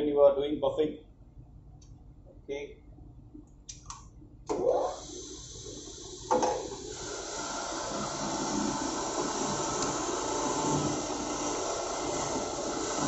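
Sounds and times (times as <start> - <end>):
bench grinder motor spinning up: 4.5 - 13.0.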